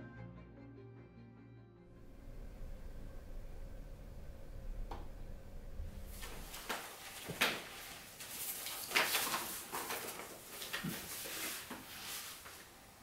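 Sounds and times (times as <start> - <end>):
paper rustling: 6.0 - 13.0.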